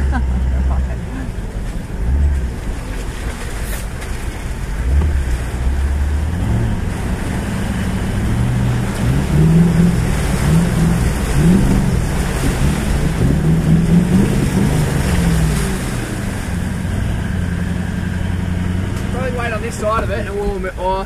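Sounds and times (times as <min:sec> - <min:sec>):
tyre and road noise rumble: 0:00.0 - 0:21.0
engine revving from inside cabin: 0:04.8 - 0:19.2.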